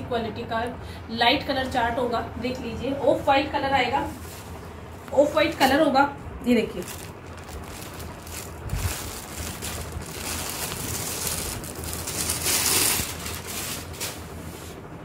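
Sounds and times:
fabric rustling: 3.9 - 5.9, 6.5 - 14.9.

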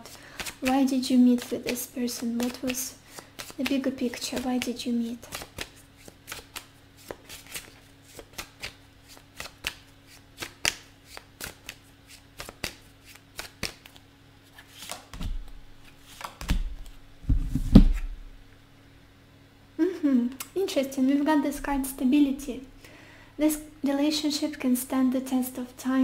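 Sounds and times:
cards being shuffled: 0.0 - 18.2.

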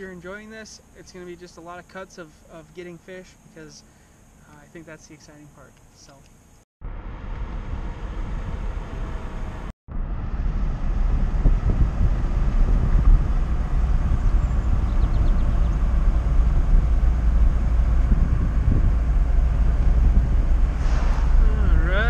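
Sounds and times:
car engine and tyre rumble: 6.1 - 22.0.

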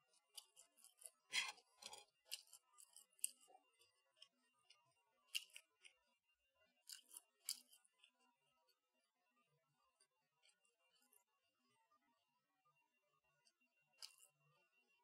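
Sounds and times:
crunchy food being chewed: 0.1 - 6.1, 6.8 - 8.2, 14.0 - 14.3.

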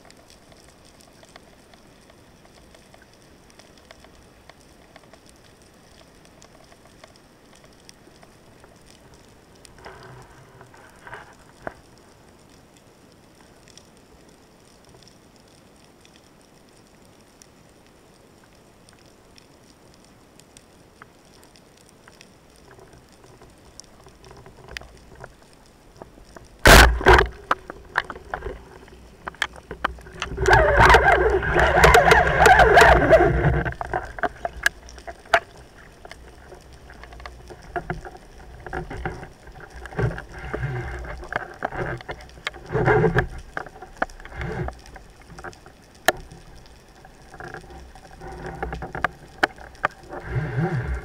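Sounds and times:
fish thrashing underwater: 26.0 - 51.0
knocks and rustles: 26.3 - 46.3
speargun firing underwater: 26.6 - 27.5.

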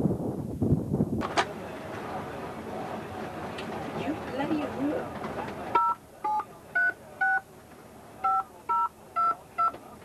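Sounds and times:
boat and sea noise: 1.2 - 6.7
telephone keypad beeps: 5.8 - 7.4, 8.2 - 9.8.

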